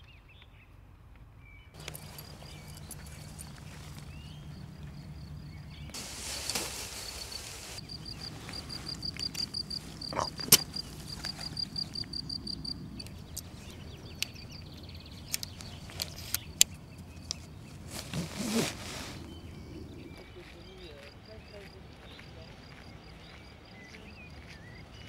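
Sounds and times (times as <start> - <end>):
metal tent poles clinking: 1.8 - 12.0, 13.0 - 19.1
tent fabric rustling: 1.8 - 12.1, 15.1 - 19.8
insects chirping: 1.8 - 25.0.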